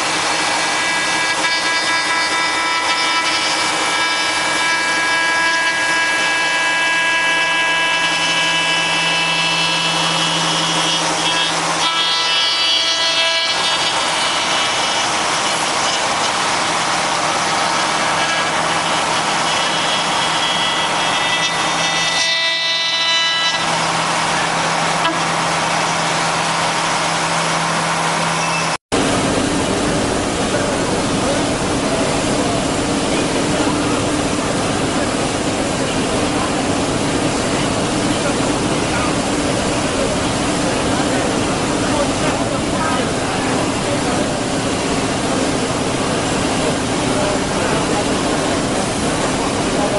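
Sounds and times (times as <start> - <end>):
router spindle whining: 0.0 - 28.8.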